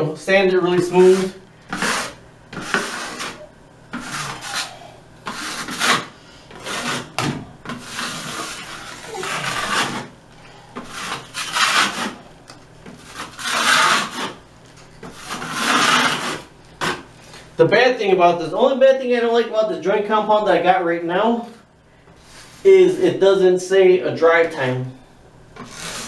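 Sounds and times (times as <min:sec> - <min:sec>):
drywall knife scraping plaster: 0:00.7 - 0:10.2, 0:10.8 - 0:12.2, 0:13.0 - 0:14.4, 0:15.1 - 0:17.0, 0:25.6 - 0:26.0.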